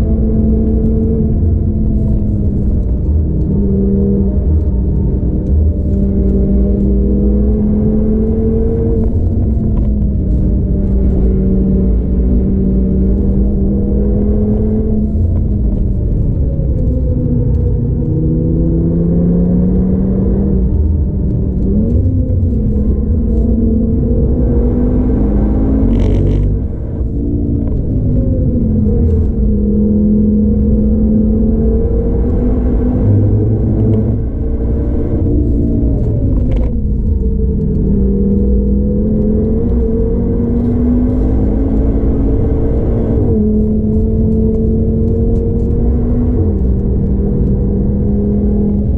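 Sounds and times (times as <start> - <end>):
car engine pulling at speed: 0.0 - 48.9
tyre and road rumble: 0.0 - 48.9.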